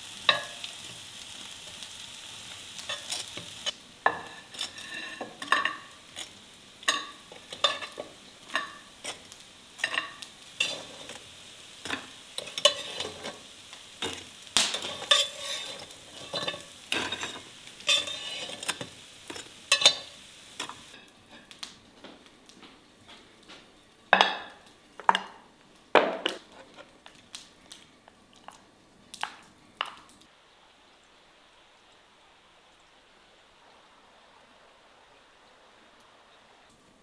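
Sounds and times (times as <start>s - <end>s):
faint sizzle: 0.0s - 37.0s
utensils scraping a frying pan: 2.8s - 21.5s, 26.1s - 26.9s
ceramic plates clinking: 4.1s - 5.9s.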